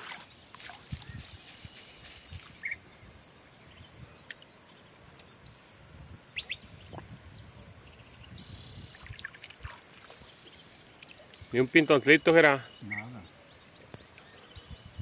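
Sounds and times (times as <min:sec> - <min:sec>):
wind: 0:00.0 - 0:15.0
bird chirps: 0:02.6 - 0:05.3, 0:06.4 - 0:09.4, 0:10.2 - 0:15.0.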